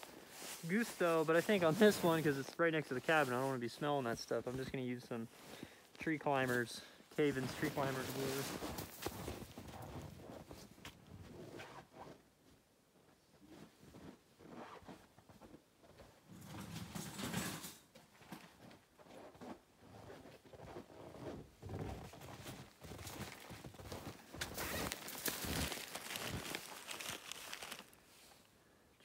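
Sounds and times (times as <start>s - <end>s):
movement in snow: 0.0s - 11.8s, 20.0s - 28.4s
rustling and knocking of gear bag: 7.5s - 11.8s, 20.0s - 28.0s.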